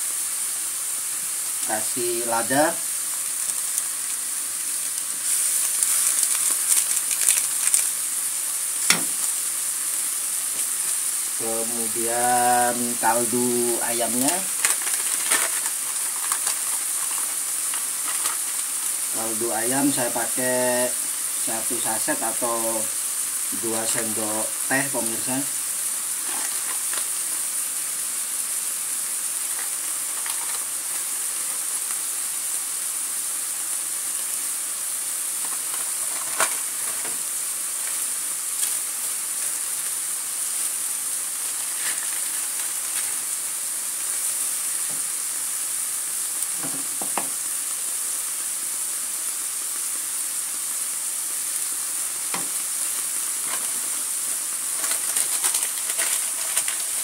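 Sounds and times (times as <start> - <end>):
food sizzling in a wok: 0.0 - 57.0
wooden spatula scraping: 26.2 - 27.0, 54.7 - 57.0.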